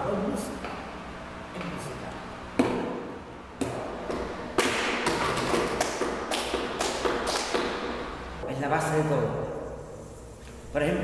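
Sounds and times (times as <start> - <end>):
people clapping rhythm: 4.1 - 8.0.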